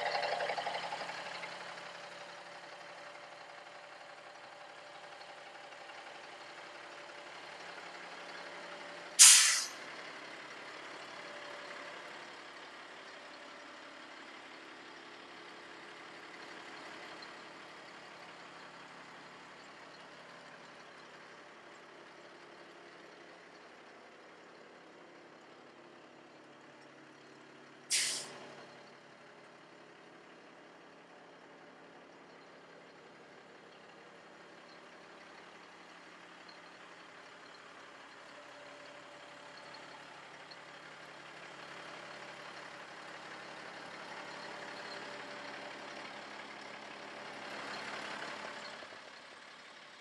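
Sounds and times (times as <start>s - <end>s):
diesel truck engine idling: 0.0s - 50.0s
air brake hissing: 9.2s - 9.8s, 27.9s - 28.4s.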